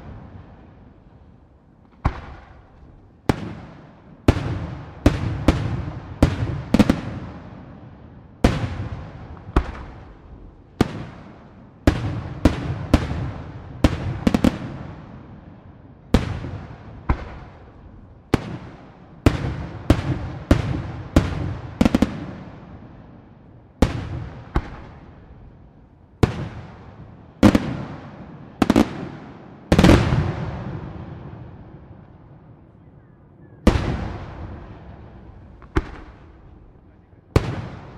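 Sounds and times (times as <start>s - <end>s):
rolling echo of bangs: 33.7s - 36.5s.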